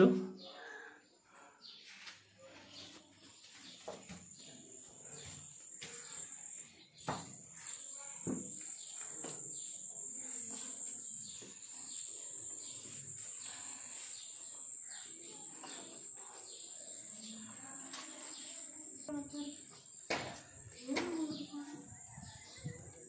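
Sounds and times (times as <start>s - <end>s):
high-pitched insect drone: 4.9s - 19.9s.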